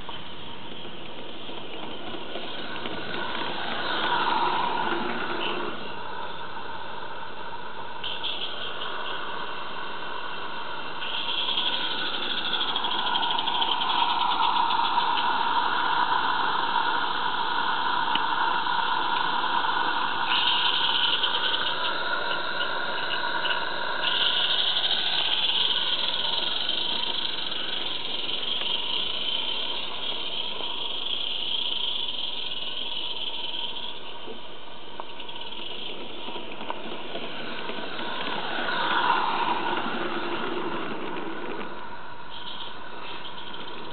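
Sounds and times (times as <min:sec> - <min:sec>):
model locomotive whirring: 0:00.0 - 0:43.9.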